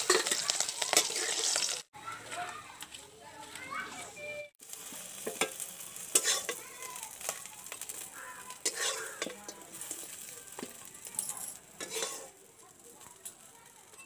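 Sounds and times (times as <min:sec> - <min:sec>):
metal spatula scraping a wok: 0:00.0 - 0:01.8, 0:05.1 - 0:12.4
frying oil sizzling: 0:00.0 - 0:01.9, 0:03.6 - 0:14.0.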